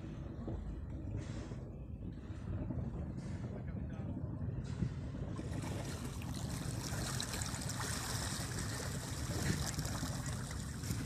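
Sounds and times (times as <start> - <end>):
water splashing against boat hull: 5.4 - 11.0.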